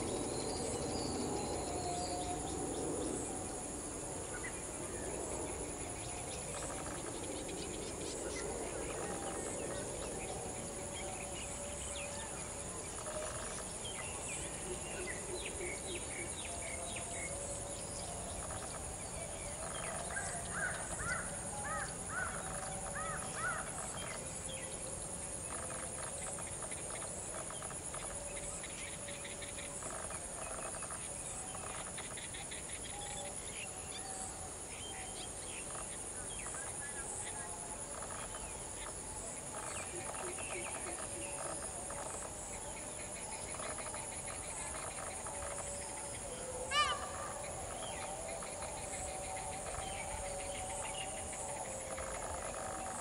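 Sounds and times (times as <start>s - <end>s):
high-pitched insect drone: 0.0s - 53.0s
bird calls: 34.9s - 53.0s.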